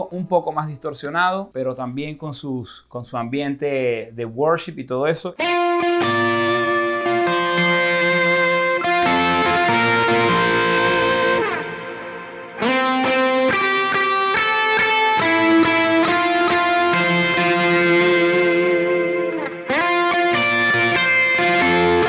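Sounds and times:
distorted electric guitar with reverb: 5.4s - 22.0s.

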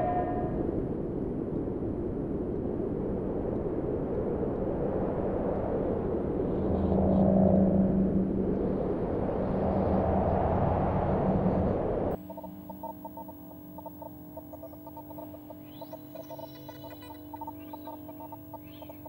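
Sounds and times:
mechanical hum: 0.0s - 19.0s
low rumbling drone: 6.0s - 19.0s.

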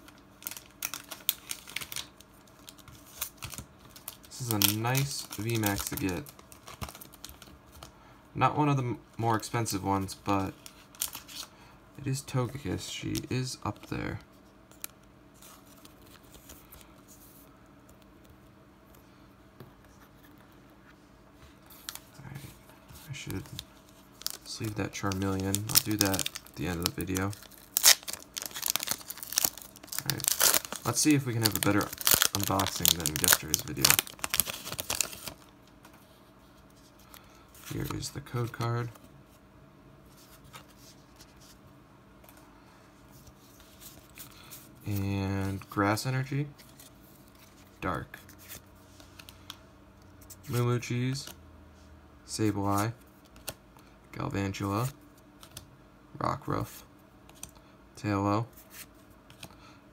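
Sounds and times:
low steady hum: 0.0s - 59.9s
trading cards rustling and scraping: 2.6s - 7.9s, 19.7s - 39.4s, 40.1s - 41.6s, 43.0s - 46.0s, 46.6s - 51.4s.

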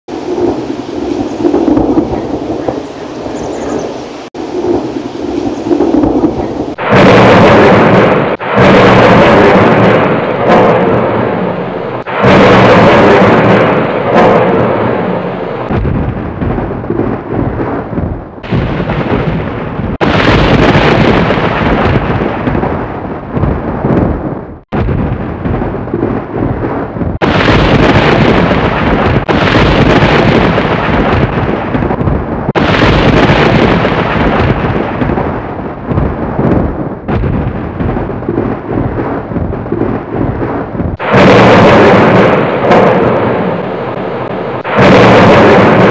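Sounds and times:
thunder rumbling and cracking: 0.1s - 45.9s.

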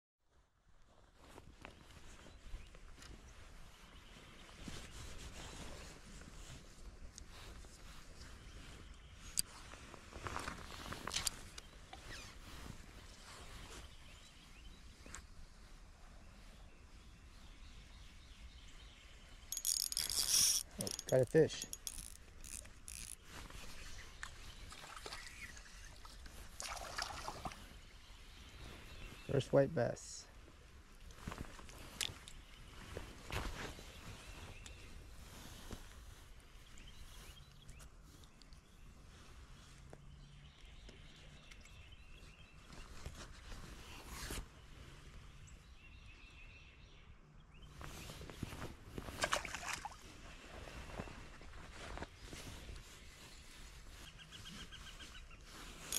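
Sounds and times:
jacket and gloves rustling: 0.6s - 17.8s, 19.5s - 24.6s, 30.6s - 39.9s, 42.6s - 45.1s, 47.8s - 49.4s, 50.0s - 55.9s
fishing reel clicking: 19.5s - 23.2s
fish splashing: 24.7s - 27.6s, 49.2s - 50.0s.

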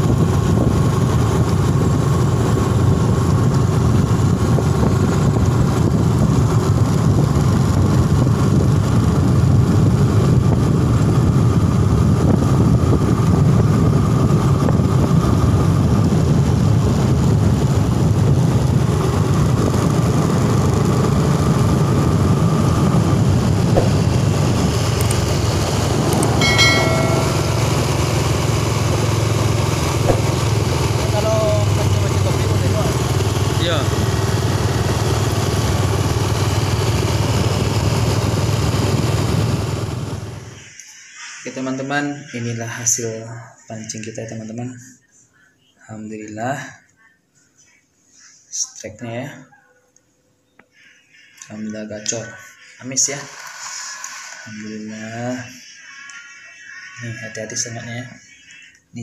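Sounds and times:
motorcycle engine hum: 0.0s - 40.6s
road and wind noise: 0.0s - 40.7s
short beep: 26.2s - 28.2s.

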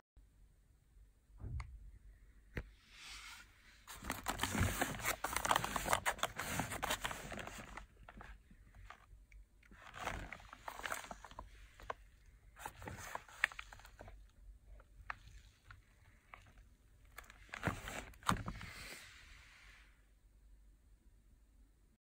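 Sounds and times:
foil and paper crinkling: 3.9s - 9.1s, 9.7s - 12.0s.

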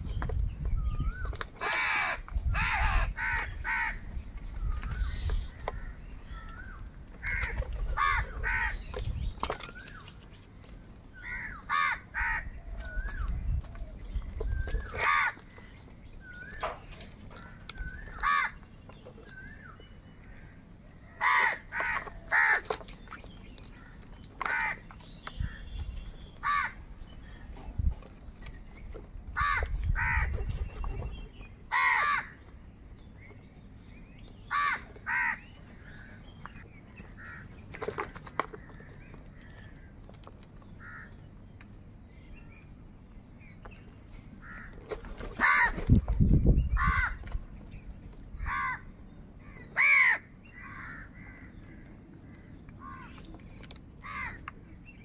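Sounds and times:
crows cawing: 1.6s - 4.0s, 7.2s - 8.8s, 11.2s - 12.6s, 14.9s - 15.4s, 17.4s - 18.6s, 21.1s - 22.8s, 23.8s - 24.8s, 26.4s - 26.8s, 29.4s - 30.3s, 31.7s - 32.4s, 34.5s - 36.2s, 37.2s - 37.5s, 40.8s - 41.2s, 44.4s - 44.8s, 45.4s - 45.8s, 46.8s - 47.2s, 48.4s - 51.8s, 52.8s - 53.2s, 54.0s - 54.4s.

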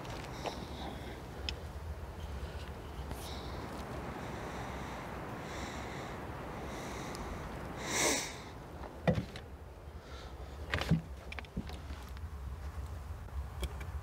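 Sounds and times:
person sniffing: 7.8s - 8.5s.

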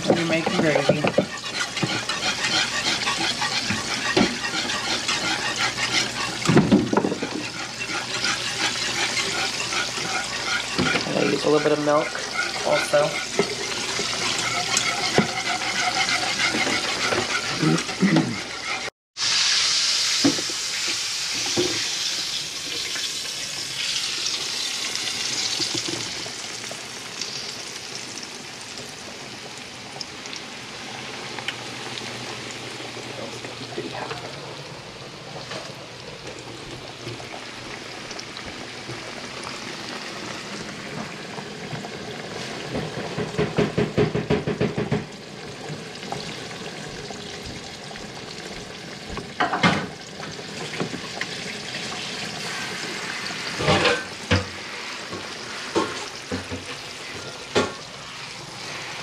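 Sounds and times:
whisk clicking against saucepan: 0.0s - 18.9s
meat sizzling in oil: 0.0s - 59.0s.

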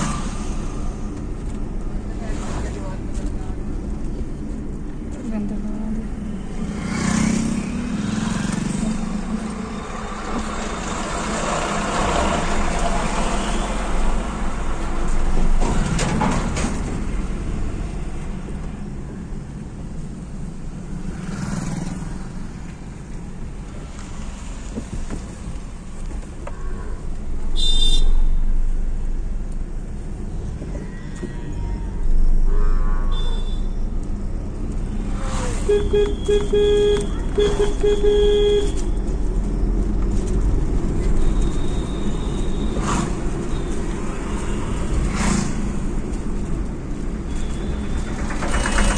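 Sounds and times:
car road noise: 0.0s - 48.9s
vehicles passing: 0.0s - 48.9s
short high-pitched beep: 35.7s - 38.8s.

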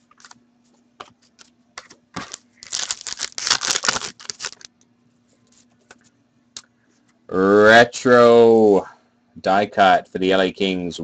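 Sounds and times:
foil wrapper tearing and crinkling: 2.2s - 4.7s.

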